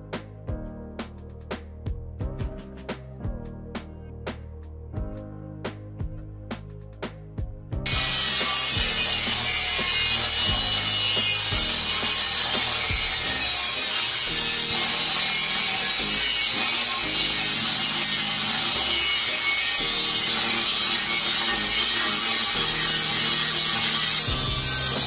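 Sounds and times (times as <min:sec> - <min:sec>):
angle grinder cutting steel: 0:07.9 - 0:25.0.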